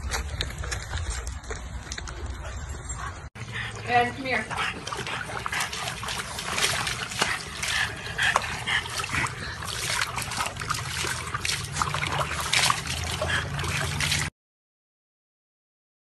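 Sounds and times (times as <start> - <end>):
water splashing in a plastic tub: 3.7 - 14.3.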